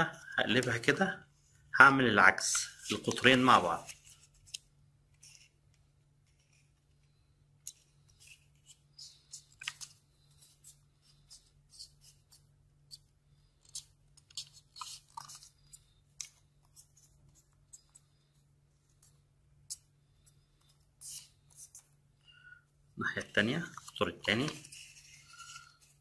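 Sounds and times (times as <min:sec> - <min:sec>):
paper folding and crinkling: 0:02.6 - 0:05.6, 0:13.7 - 0:18.2, 0:23.2 - 0:26.0.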